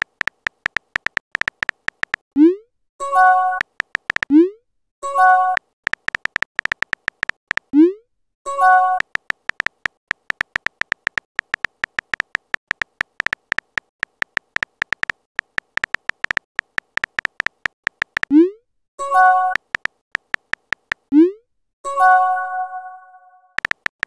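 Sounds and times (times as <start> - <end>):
keyboard tap clicks: 0.0 - 2.2, 3.6 - 4.3, 5.9 - 7.7, 9.0 - 18.3, 19.5 - 21.1, 23.6 - 24.0.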